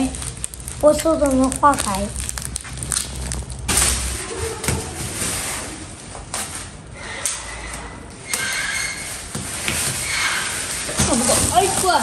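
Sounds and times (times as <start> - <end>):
plastic wrapping rustling: 0.0 - 6.9, 8.3 - 12.0
thin high squeak: 7.0 - 9.3, 9.9 - 10.8.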